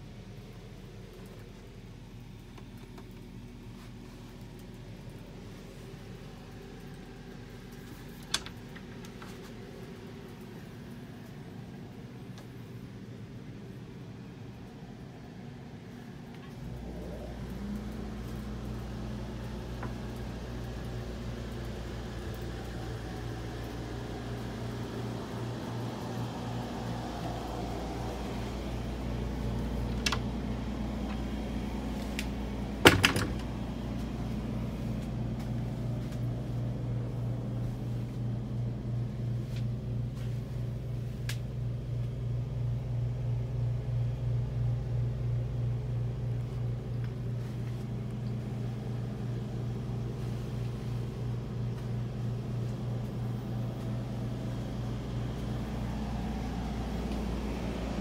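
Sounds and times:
machinery humming with pulsing beat: 0:00.0 - 0:58.0
light ticks: 0:41.2 - 0:42.2.

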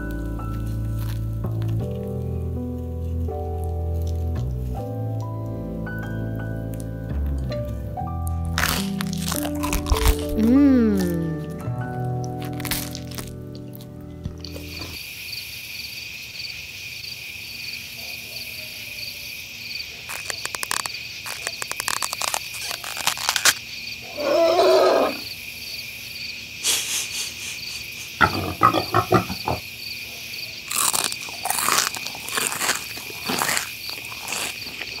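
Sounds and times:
crunchy bites of fried food: 0:00.0 - 0:05.5, 0:08.2 - 0:15.1, 0:19.6 - 0:25.4, 0:26.2 - 0:35.0
crickets chirping: 0:08.6 - 0:35.0.

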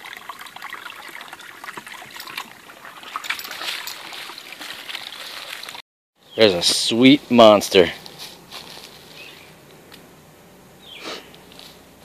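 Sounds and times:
brook trickling over rocks: 0:00.0 - 0:05.8
dog wading splashes: 0:00.6 - 0:05.8.

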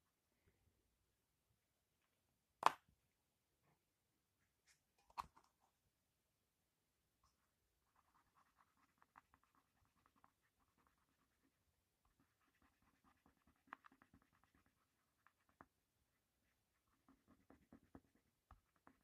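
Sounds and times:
pencil scratching on paper: 0:07.9 - 0:19.0.

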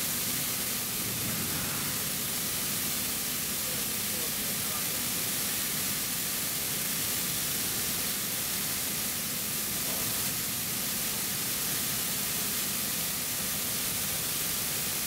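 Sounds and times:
laser cutter hissing: 0:00.0 - 0:06.5.

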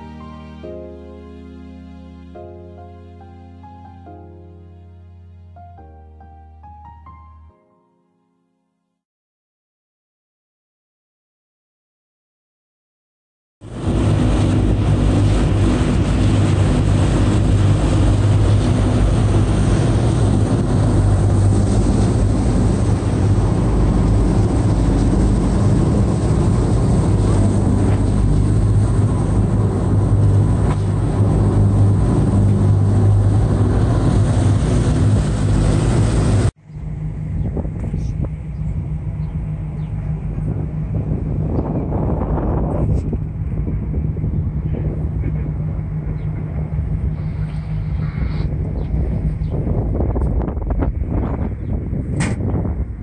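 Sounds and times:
wind: 0:00.0 - 0:07.6, 0:13.6 - 0:53.0
water rushing in wake: 0:13.6 - 0:37.3
boat engine humming: 0:13.6 - 0:53.0
steady rumble: 0:13.6 - 0:53.0.

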